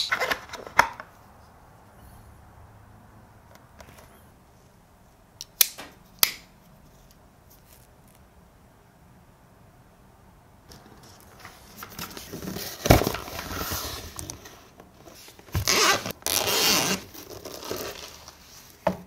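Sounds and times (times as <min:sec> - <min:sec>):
cardboard box scraping and rustling: 0:11.0 - 0:18.8
zipper pulls: 0:15.5 - 0:18.3.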